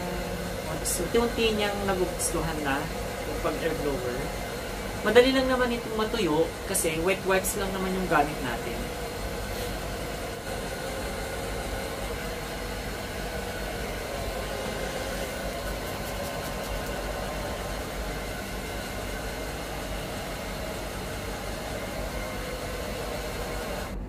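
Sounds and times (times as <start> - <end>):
hair dryer running: 0.0 - 24.0.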